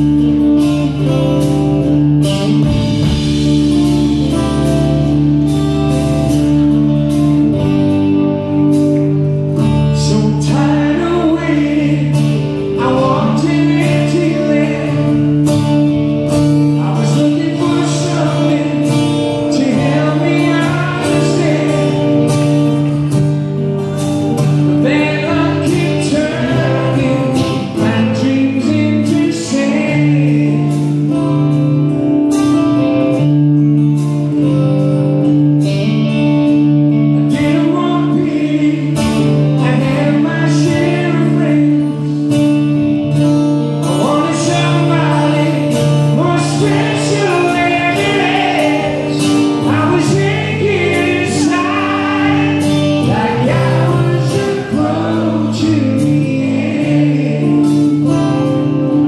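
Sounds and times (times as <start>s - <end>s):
electric guitar chords: 0.0s - 59.0s
lead singer's voice: 8.8s - 31.4s, 37.1s - 43.0s, 43.7s - 59.0s.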